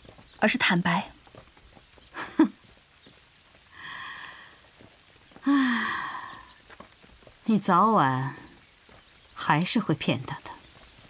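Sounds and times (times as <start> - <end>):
woman sighing: 5.4 - 6.4.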